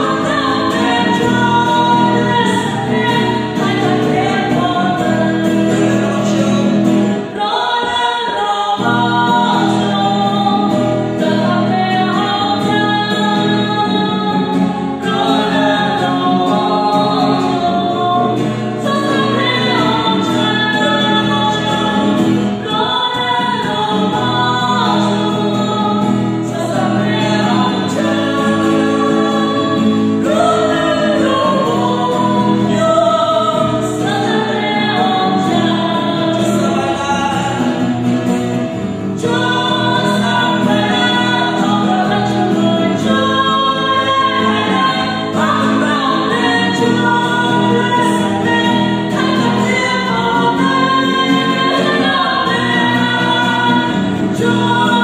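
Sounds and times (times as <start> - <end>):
acoustic guitar strumming: 0.0 - 55.0
man and woman singing: 0.0 - 55.0.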